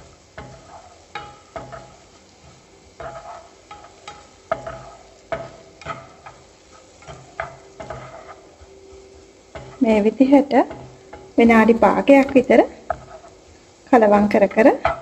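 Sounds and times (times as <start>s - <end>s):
light sizzle of oil: 0.0s - 15.0s
spatula scraping frying pan: 0.0s - 15.0s
spatula knocking against pan: 7.0s - 9.8s.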